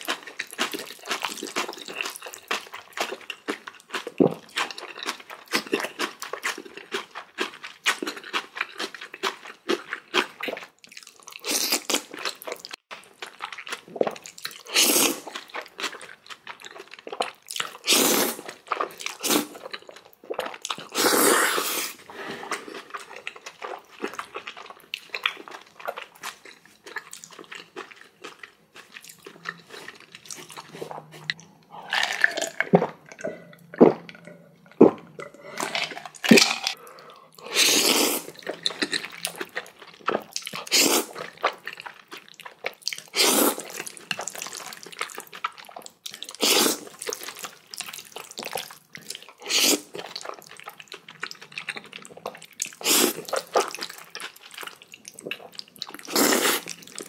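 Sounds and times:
chewing and crunching: 0:00.0 - 0:57.0
noodles slurped: 0:13.4 - 0:24.7, 0:28.8 - 0:57.0.

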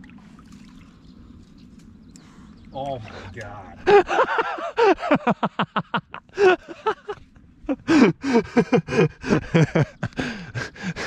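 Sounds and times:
man laughing hard: 0:03.8 - 0:11.0.

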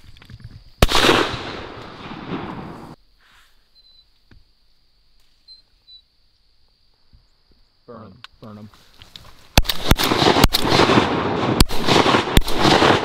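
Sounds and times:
shotgun blast with echo: 0:00.8 - 0:02.9, 0:09.6 - 0:13.0
faint small ticks: 0:03.8 - 0:09.8.

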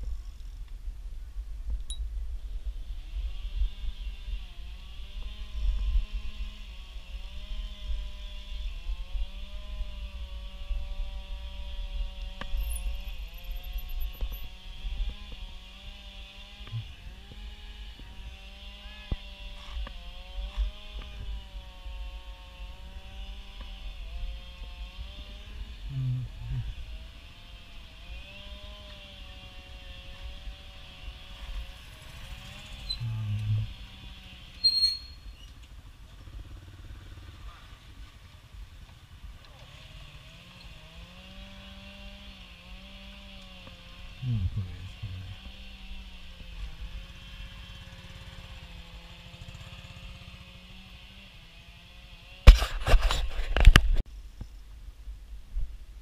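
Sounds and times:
small engine running: 0:02.6 - 0:53.9.

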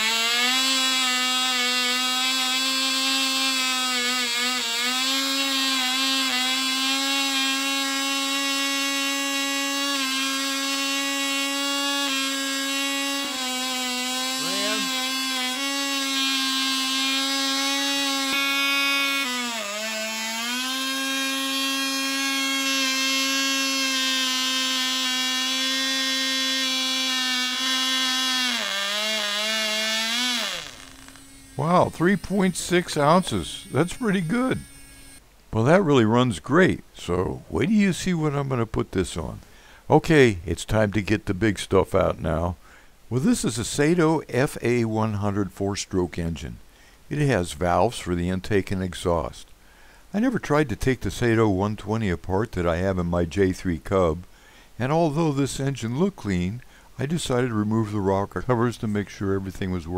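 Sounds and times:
model engine high-pitched whine: 0:13.1 - 0:15.9, 0:17.8 - 0:35.2.

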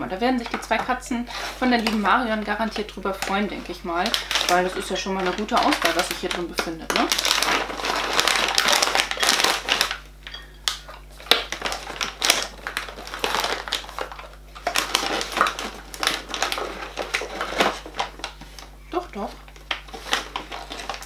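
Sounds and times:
plastic packaging crinkling: 0:00.4 - 0:21.0.

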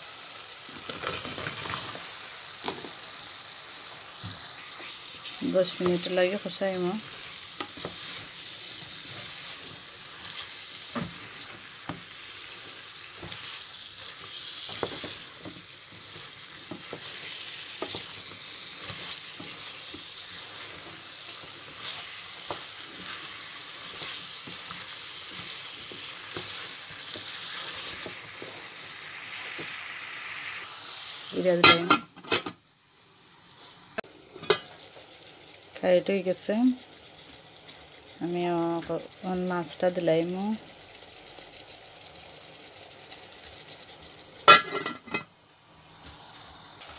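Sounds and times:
paste and beans sizzling: 0:00.0 - 0:46.9
wooden spatula scraping pan: 0:05.7 - 0:12.0.

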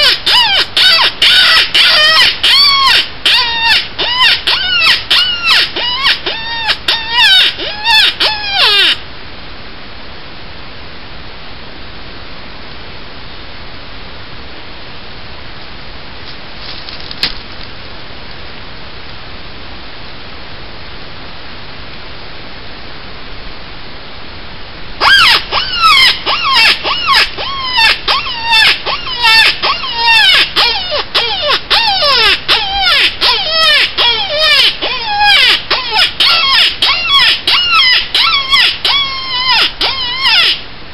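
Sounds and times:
predator call squealing cries: 0:00.0 - 0:09.0, 0:25.0 - 0:40.7.

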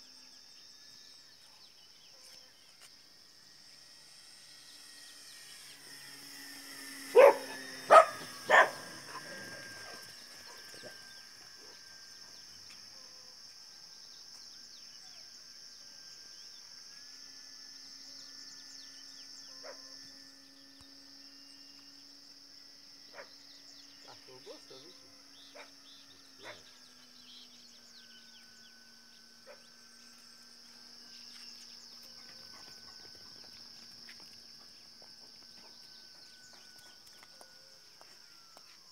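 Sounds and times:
high insect drone: 0:00.0 - 0:38.9
model airplane motor hum: 0:00.0 - 0:38.9
dog barking: 0:07.2 - 0:08.8, 0:26.4 - 0:26.6.

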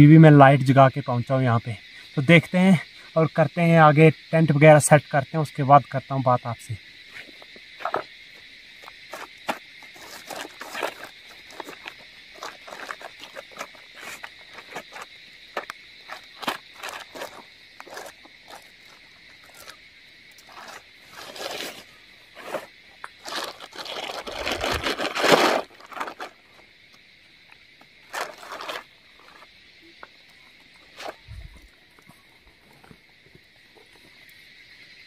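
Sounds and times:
crickets chirping: 0:00.0 - 0:35.0
tent fabric rustling: 0:09.9 - 0:19.7, 0:20.4 - 0:26.4, 0:28.1 - 0:29.4.

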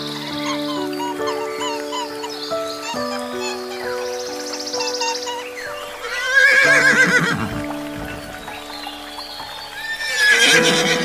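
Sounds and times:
background music with held notes: 0:00.0 - 0:11.0
horse whinnying: 0:06.0 - 0:08.1, 0:09.8 - 0:11.0.

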